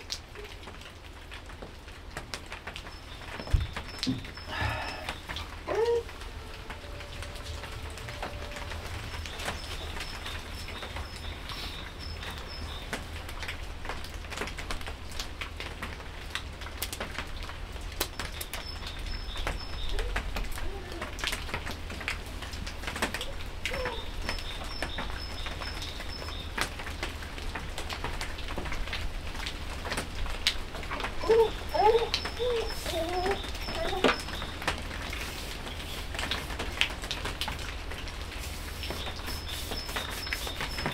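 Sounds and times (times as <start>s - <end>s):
low cooing calls: 3.4s - 12.4s, 23.1s - 25.8s, 30.9s - 34.7s.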